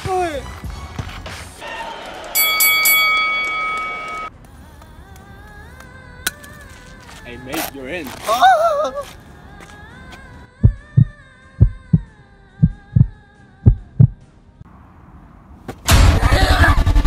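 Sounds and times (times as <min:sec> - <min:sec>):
heartbeat thumps: 0:10.6 - 0:14.2.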